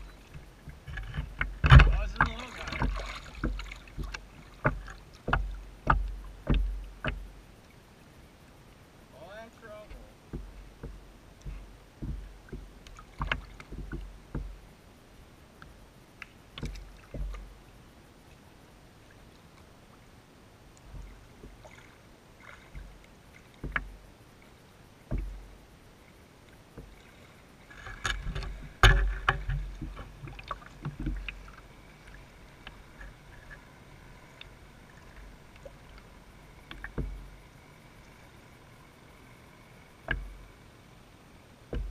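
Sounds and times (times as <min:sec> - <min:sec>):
knocks and low thumps: 0:00.0 - 0:07.4, 0:09.8 - 0:14.8, 0:16.6 - 0:17.6, 0:20.9 - 0:21.6, 0:22.7 - 0:23.0, 0:23.6 - 0:24.1, 0:25.0 - 0:25.6, 0:28.0 - 0:33.5, 0:36.6 - 0:37.4, 0:40.0 - 0:40.5, 0:41.7 - 0:41.9
water lapping against plastic hull: 0:00.0 - 0:08.8, 0:09.4 - 0:40.8, 0:41.6 - 0:41.9.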